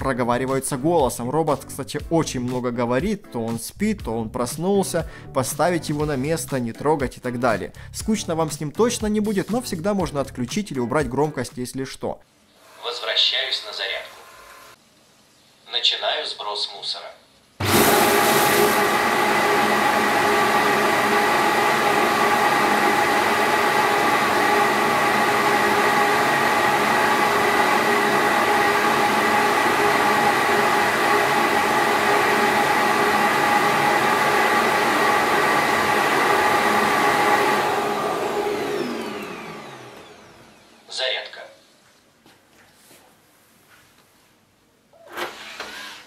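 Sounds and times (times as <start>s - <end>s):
suction motor whining: 12.6s - 14.8s, 17.6s - 40.9s, 45.0s - 46.0s.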